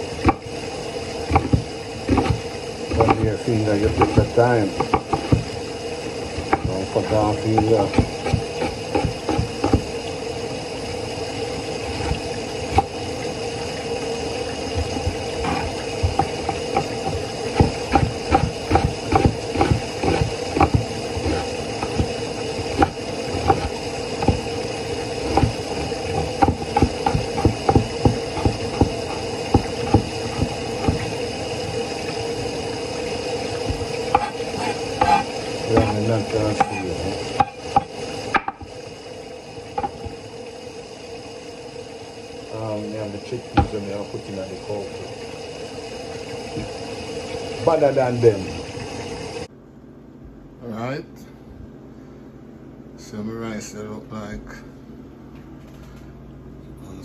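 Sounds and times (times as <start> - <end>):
steady background hum: 0.0 - 57.0
knife chopping on wooden board: 14.8 - 22.1, 25.3 - 31.1, 33.7 - 36.0.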